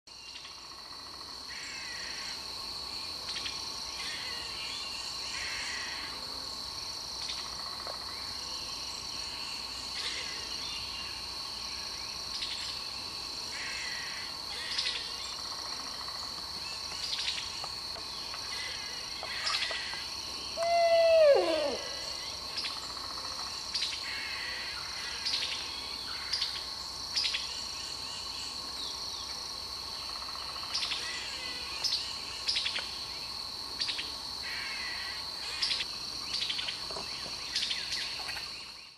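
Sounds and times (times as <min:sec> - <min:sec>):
high insect drone: 0:00.1 - 0:38.9
owl hoot: 0:20.6 - 0:22.3.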